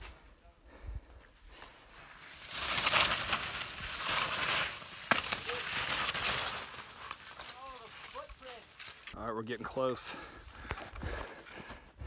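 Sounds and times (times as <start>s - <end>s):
skis scraping over snow: 1.5s - 9.2s.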